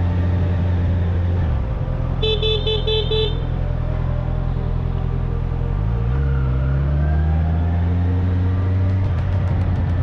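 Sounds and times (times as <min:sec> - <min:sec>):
motorcycle engine running: 0:07.9 - 0:10.0.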